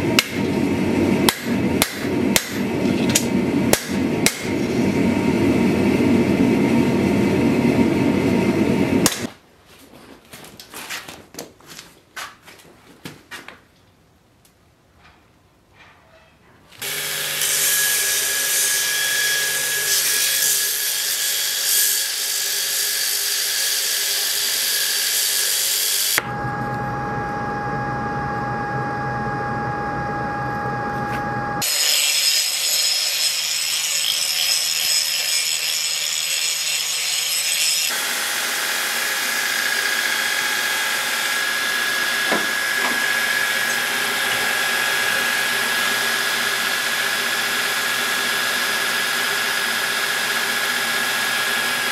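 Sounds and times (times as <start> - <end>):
electric power tool whining: 16.8 - 20.8, 36.5 - 51.9.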